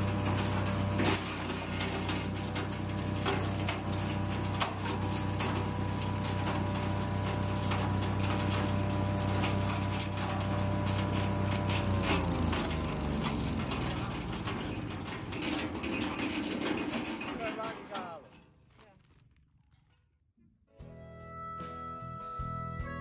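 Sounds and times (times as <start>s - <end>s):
branches cracking in chipper: 0.0s - 15.8s, 17.4s - 19.8s
wood chipper engine running: 0.0s - 19.6s.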